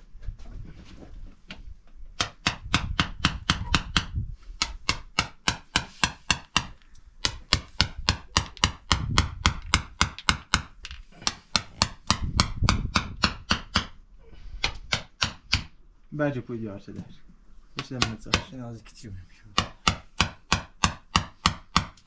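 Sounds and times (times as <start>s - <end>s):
hand hammer tapping: 2.2s - 14.0s, 14.6s - 15.7s, 17.8s - 18.5s, 19.5s - 22.0s.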